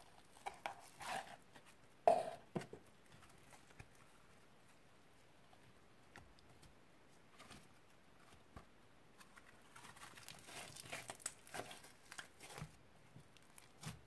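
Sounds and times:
slime crackling and popping: 9.8 - 12.6.

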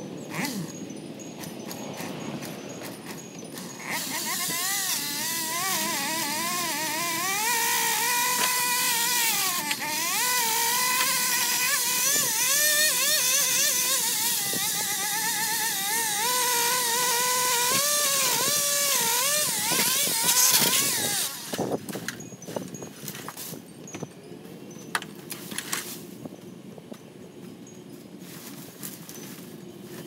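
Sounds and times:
pole saw engine at high revs: 0.2 - 22.2.

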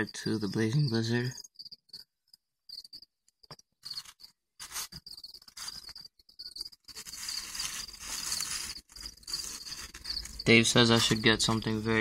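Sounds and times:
cricket chirping: 0.0 - 12.0
plastic tub rustling and scraping: 3.8 - 11.8.

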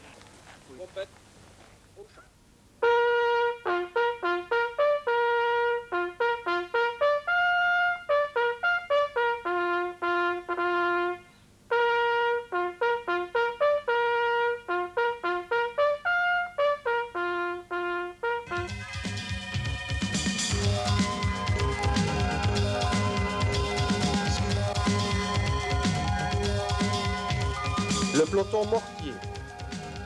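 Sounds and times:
bugle call on brass horn: 2.8 - 18.8.

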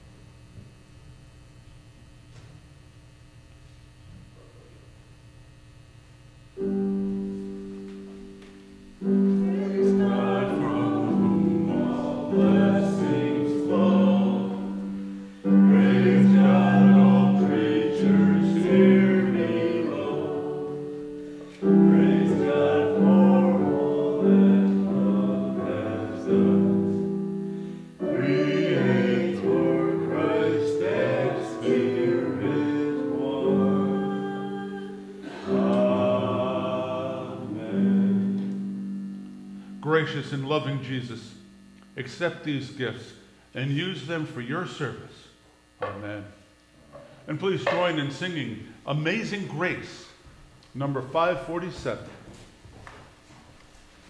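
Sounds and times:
voices singing with instruments: 9.0 - 38.6.

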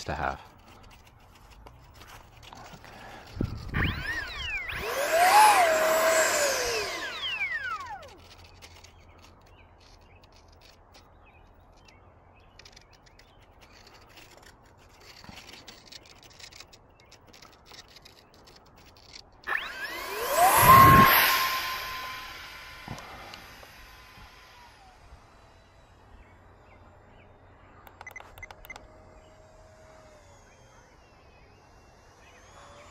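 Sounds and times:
electric motor and propeller whine: 0.0 - 32.9
clicks: 27.8 - 28.9.

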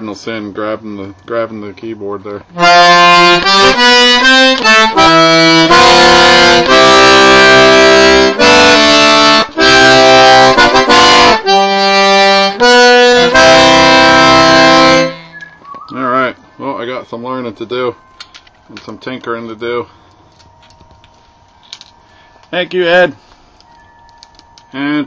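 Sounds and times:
button accordion notes and chords: 2.5 - 15.6.

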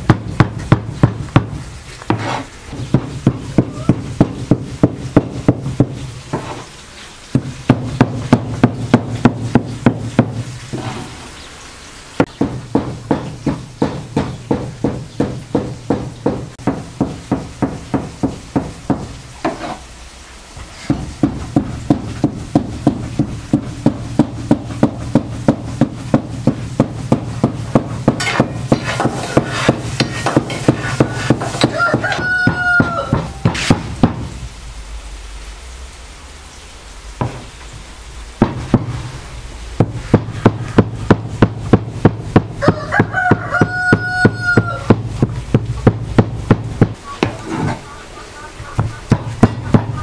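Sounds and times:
cleaver chopping meat on wood: 0.0 - 6.6, 7.3 - 10.4, 12.2 - 19.6, 20.9 - 34.3, 39.8 - 47.4, 49.1 - 50.0
rooster crowing: 31.6 - 33.5, 42.6 - 45.0.

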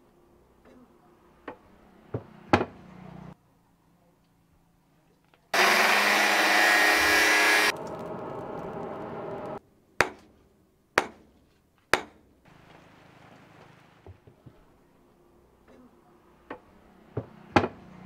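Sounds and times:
loud whirring rush: 5.6 - 9.6.

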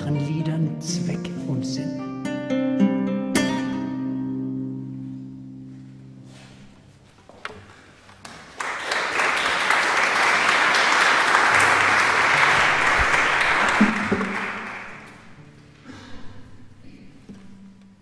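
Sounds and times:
acoustic guitar chord: 0.0 - 6.5
audience applause: 8.2 - 15.5.

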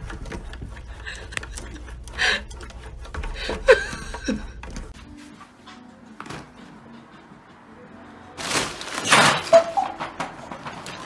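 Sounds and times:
fabric tunnel crashing onto floor: 8.4 - 11.0.

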